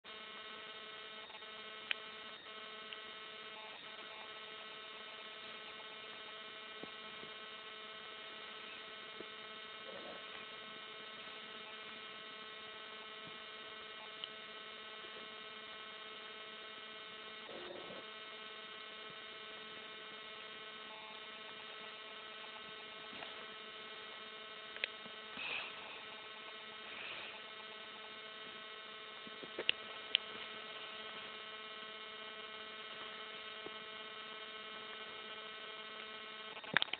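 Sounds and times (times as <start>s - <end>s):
steady electrical hum: 0.0s - 36.9s
faint clicks: 24.7s - 25.1s.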